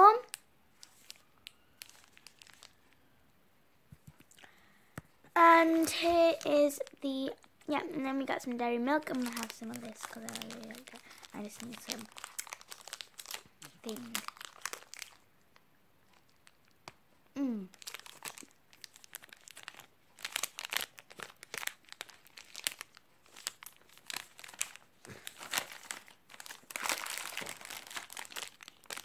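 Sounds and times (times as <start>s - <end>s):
plastic wrappers crinkling: 0.0s - 3.1s, 5.4s - 17.0s, 17.6s - 29.0s
wrapper tearing: 0.8s - 2.8s, 9.0s - 15.2s, 17.7s - 29.0s.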